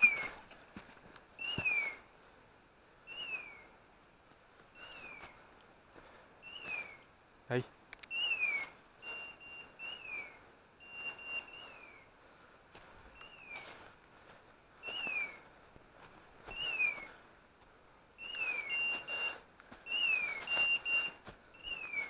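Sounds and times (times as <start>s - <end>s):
steps rustling through dry leaves: 12.7s - 17.1s.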